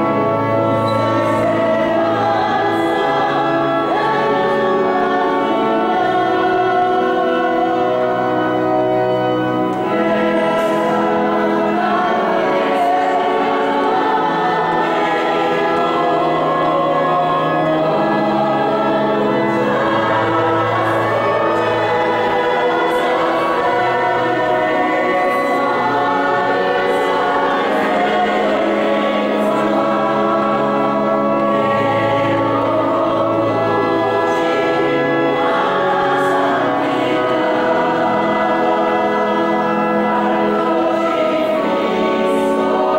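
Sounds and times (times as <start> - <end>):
choir singing a hymn: 0.0 - 42.9
organ: 0.0 - 42.9.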